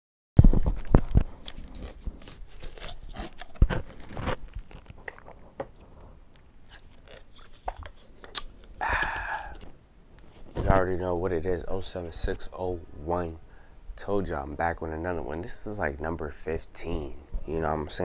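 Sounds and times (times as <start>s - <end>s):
plastic jug crinkling: 0.4s - 8.8s
short breathy rush: 8.8s - 9.7s.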